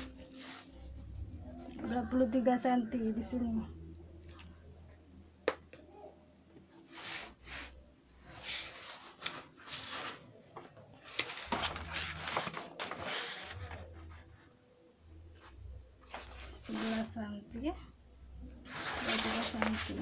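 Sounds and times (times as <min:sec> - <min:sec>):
paper rustling: 0:08.3 - 0:14.4, 0:16.0 - 0:17.1, 0:18.7 - 0:20.0.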